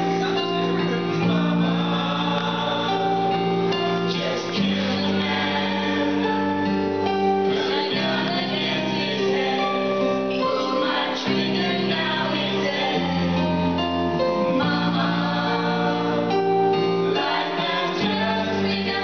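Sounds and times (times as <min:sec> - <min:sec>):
group singing into microphones: 0:00.0 - 0:19.0
karaoke backing track: 0:00.0 - 0:19.0.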